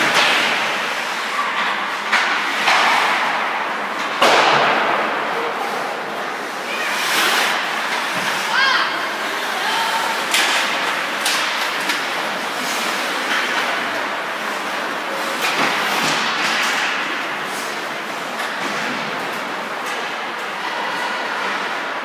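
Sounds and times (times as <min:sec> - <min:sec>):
sticks and puck clacking: 0:00.0 - 0:21.7
skate blades scraping ice: 0:06.4 - 0:16.8.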